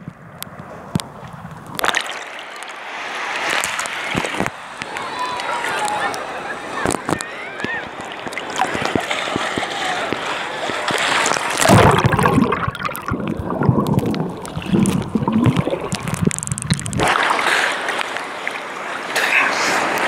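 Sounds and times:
water ticks on microphone: 0:00.0 - 0:02.8, 0:06.8 - 0:17.2
water lapping and splashing: 0:00.0 - 0:20.0
muffled underwater rumble: 0:11.6 - 0:17.1.

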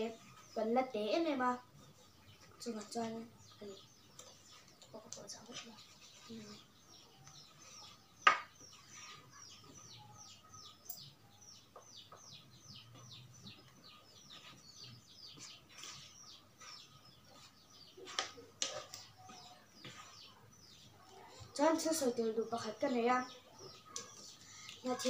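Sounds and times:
small bird chirping: 0:00.0 - 0:25.0
rustling: 0:13.6 - 0:20.4.

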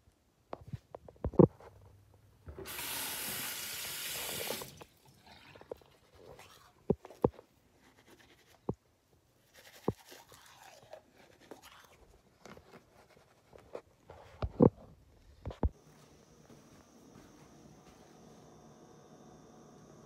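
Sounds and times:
toothbrush scrubbing teeth: 0:09.4 - 0:13.4.

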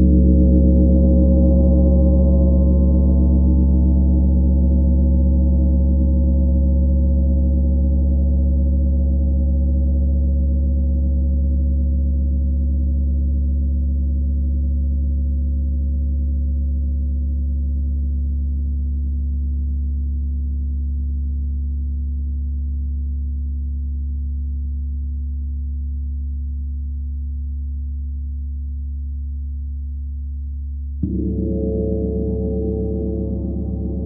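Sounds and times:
gong ringing: 0:31.0 - 0:34.0.

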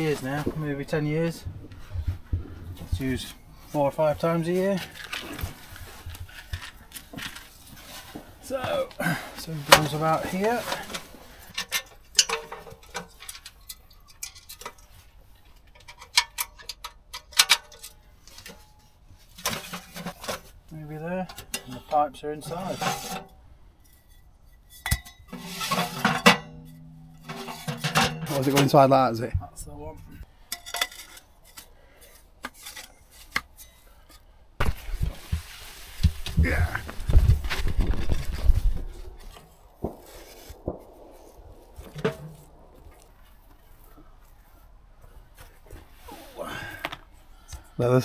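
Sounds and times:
low thumps and rumbling: 0:00.0 - 0:03.7, 0:34.6 - 0:44.2
metal pipe scraping: 0:00.0 - 0:08.5, 0:09.2 - 0:46.4
metal clanks: 0:04.7 - 0:20.6, 0:21.2 - 0:34.8
metal clicks and knocks: 0:15.6 - 0:18.7.

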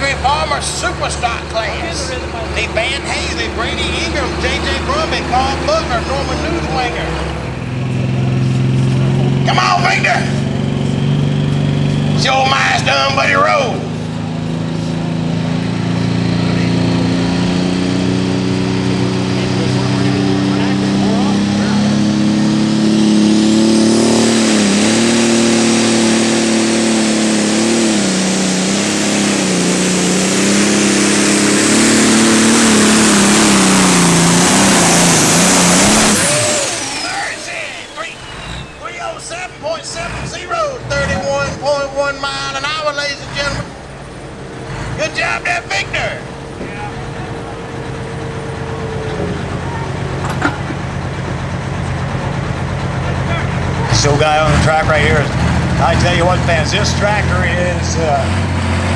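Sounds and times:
tractor diesel engine under load: 0:00.0 - 0:58.9
turbocharger whistle: 0:15.9 - 0:43.6
thin whistle: 0:38.0 - 0:38.9.

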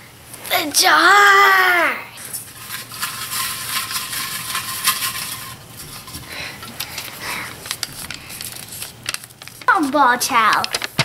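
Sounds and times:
paper slips rustling in glass jar: 0:02.2 - 0:11.0.

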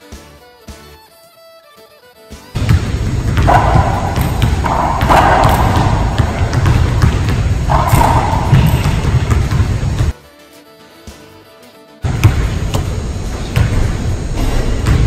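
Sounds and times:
ball hitting rackets and walls: 0:02.5 - 0:10.2, 0:12.0 - 0:15.0.

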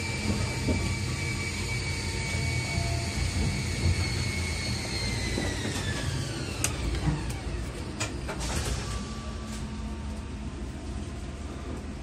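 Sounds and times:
electric train motor whine: 0:00.0 - 0:12.0
wheels rumbling on rail: 0:00.0 - 0:12.0.

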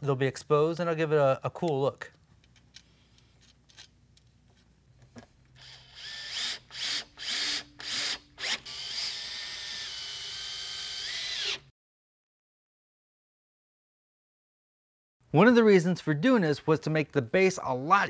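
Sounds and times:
cordless drill driving screws: 0:05.6 - 0:11.7.

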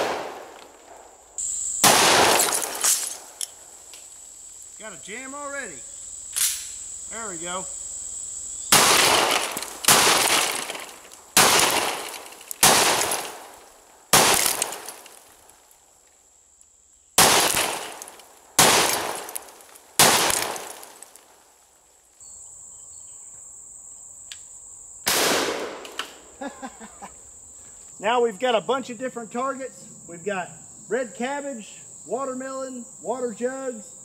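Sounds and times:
shotgun firing with echo: 0:00.0 - 0:01.1, 0:01.8 - 0:03.0, 0:08.7 - 0:10.8, 0:11.4 - 0:15.0, 0:17.2 - 0:19.4, 0:20.0 - 0:20.9, 0:25.1 - 0:26.0
high insect buzz: 0:00.0 - 0:34.0.

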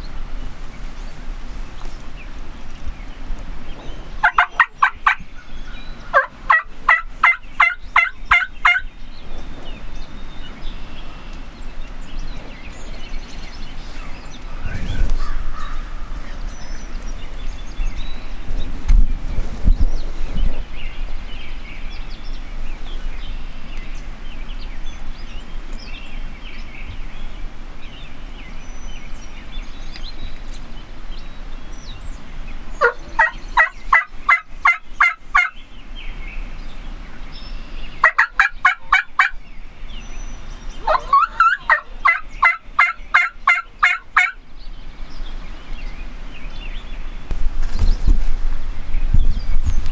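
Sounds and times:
turkey yelps: 0:04.2 - 0:05.2, 0:06.1 - 0:08.8, 0:32.8 - 0:35.6, 0:38.0 - 0:39.3, 0:40.8 - 0:44.4.

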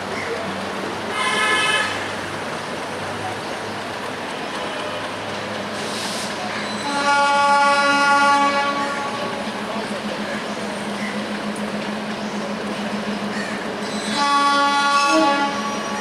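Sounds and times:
low rumble of train: 0:00.0 - 0:16.0
diesel locomotive horn blasts: 0:01.1 - 0:02.3, 0:06.6 - 0:09.6, 0:13.9 - 0:16.0.

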